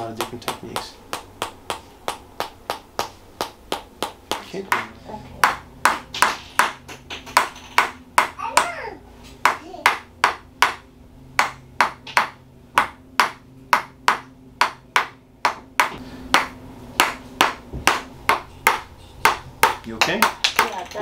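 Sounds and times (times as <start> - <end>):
hammer knocking on stick: 0.0 - 8.8.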